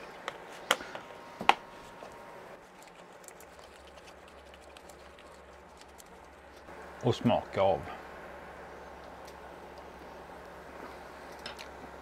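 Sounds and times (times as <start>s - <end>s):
potatoes squishing: 2.6s - 6.7s.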